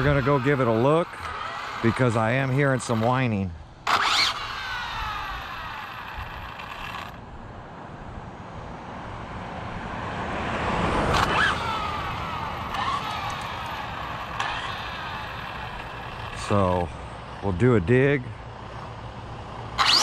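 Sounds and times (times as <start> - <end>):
rc car motors whining: 0.0 - 7.2, 11.0 - 17.6, 19.7 - 20.0.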